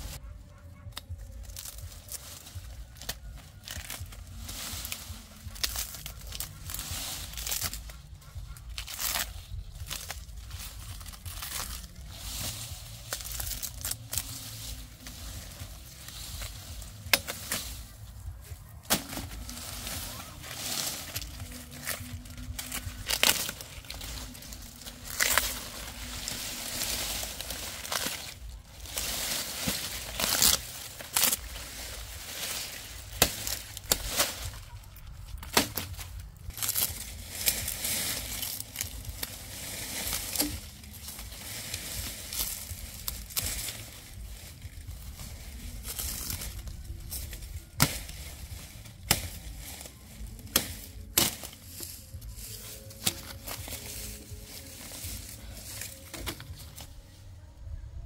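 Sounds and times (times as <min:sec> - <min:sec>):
dry leaves crackling and rustling: 0:00.0 - 0:58.0
machete chopping cane: 0:17.0 - 0:17.8, 0:18.8 - 0:19.4, 0:32.5 - 0:34.5, 0:35.4 - 0:41.2, 0:47.8 - 0:48.3, 0:48.9 - 0:49.8, 0:50.4 - 0:52.0, 0:53.0 - 0:53.7.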